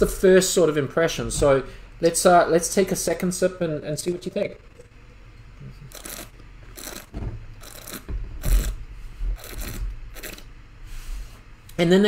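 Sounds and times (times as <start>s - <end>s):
person slurping wine: 4.5s - 8.8s, 9.4s - 10.5s.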